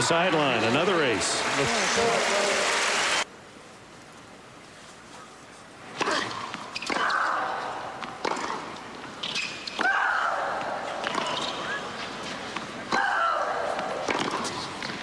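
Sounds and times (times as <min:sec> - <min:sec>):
racquet striking tennis ball: 0:12.5 - 0:15.0.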